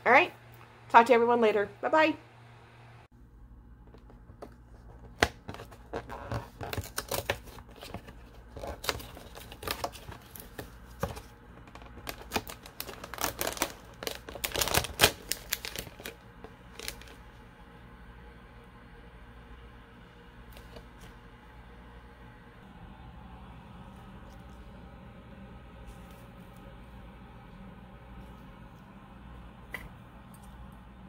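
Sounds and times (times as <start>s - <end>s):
foil sachet rustling: 5.7s - 17.3s.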